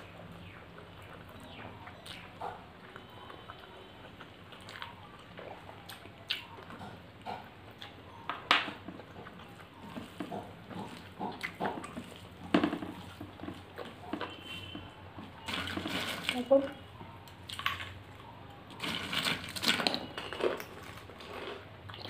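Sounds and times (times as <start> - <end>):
chewing and lip smacking: 0.0 - 14.1, 19.8 - 22.0.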